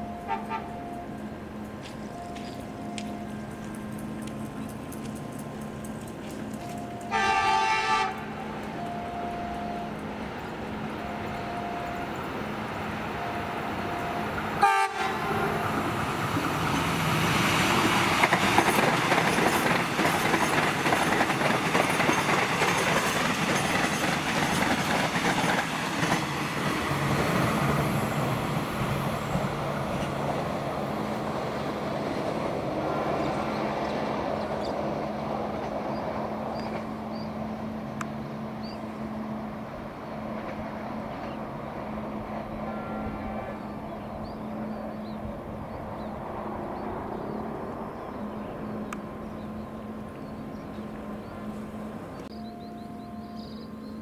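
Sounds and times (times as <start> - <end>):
train horn: 0.0 - 1.1, 7.0 - 10.0, 13.2 - 15.9, 42.4 - 43.8
train wheels clickety-clack: 1.6 - 7.3, 16.4 - 27.9.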